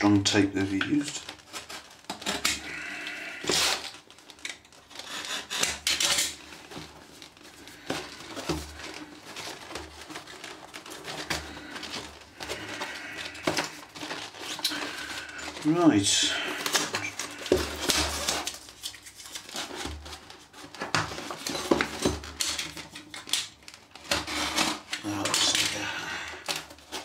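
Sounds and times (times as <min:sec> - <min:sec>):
knife slicing packing tape: 0:04.9 - 0:06.4
cardboard rustling and knocking: 0:16.6 - 0:23.0.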